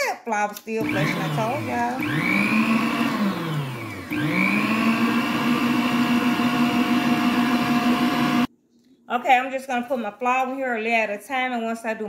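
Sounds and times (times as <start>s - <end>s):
stand mixer motor whining: 0.8s - 8.5s.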